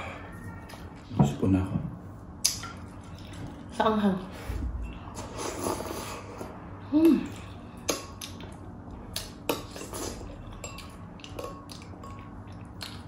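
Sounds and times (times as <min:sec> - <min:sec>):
metal spoon clinking glass bowl: 0:10.5 - 0:12.4.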